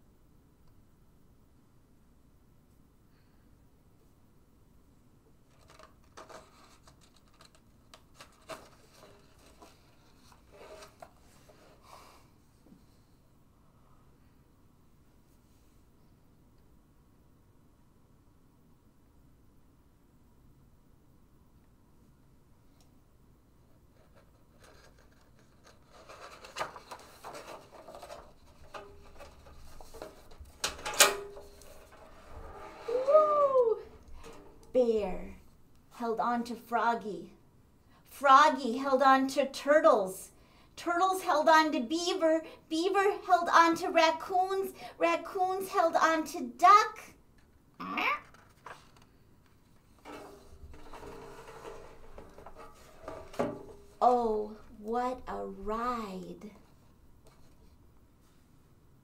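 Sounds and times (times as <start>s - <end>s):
book page turning: 5.5s - 11.8s, 24.0s - 30.6s, 48.2s - 53.1s
paper rustling: 5.5s - 11.9s, 23.9s - 33.0s, 48.2s - 54.0s.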